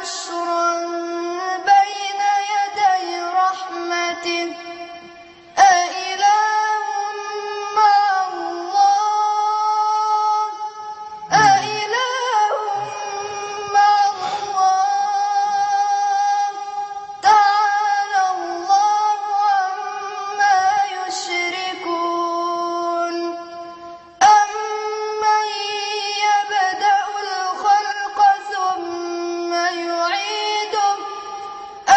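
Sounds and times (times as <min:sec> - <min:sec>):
boy chanting solo: 0:11.3 - 0:14.7.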